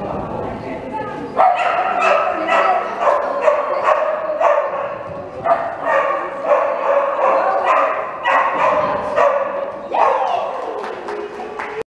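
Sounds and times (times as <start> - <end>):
dog barking: 1.4 - 10.3.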